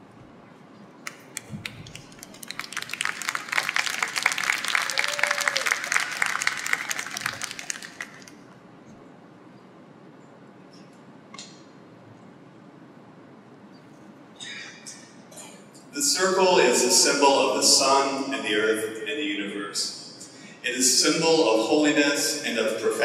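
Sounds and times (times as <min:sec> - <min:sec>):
small audience clapping: 0:01.0 - 0:08.6.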